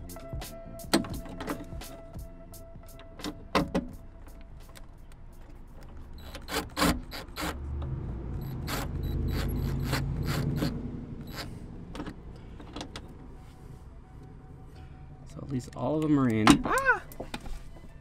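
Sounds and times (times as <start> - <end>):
cordless driver motor: 8.4 - 11.5.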